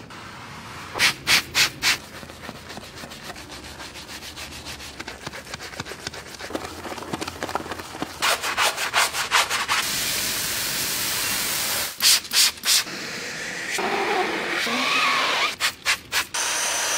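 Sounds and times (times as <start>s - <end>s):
sponge rubbing car door sill: 1.6s - 6.7s
brush scrubbing wheel: 1.6s - 9.8s.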